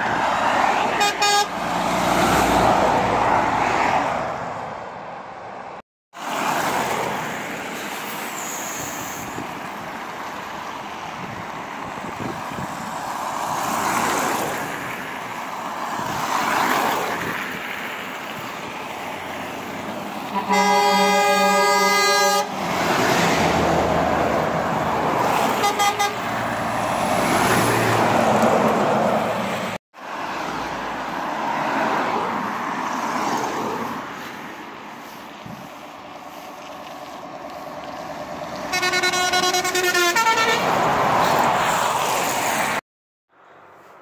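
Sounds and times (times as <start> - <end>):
road traffic passing: 0.0 - 44.0
truck horn: 0.9 - 1.7, 20.3 - 22.7, 25.4 - 26.4, 38.6 - 40.8.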